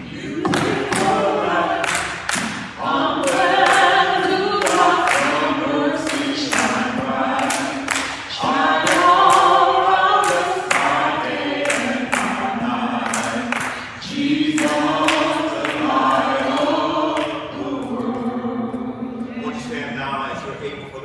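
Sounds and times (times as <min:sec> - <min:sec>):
group singing gospel: 0:00.0 - 0:20.6
hand claps: 0:00.4 - 0:17.4.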